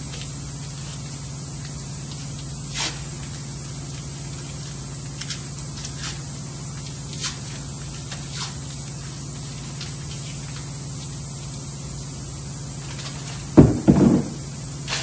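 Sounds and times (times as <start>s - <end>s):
low hum with high hiss: 0.0s - 15.0s
tape ripping off a roll: 2.4s - 3.4s.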